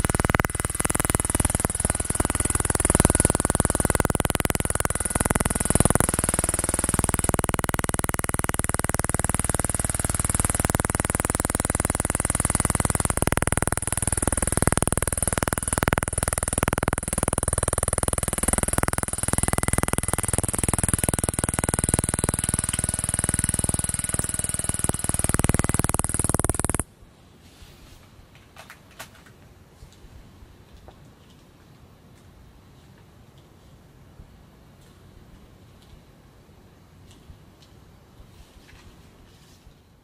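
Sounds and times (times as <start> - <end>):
electronic buzz with high whine: 0.0 - 26.9.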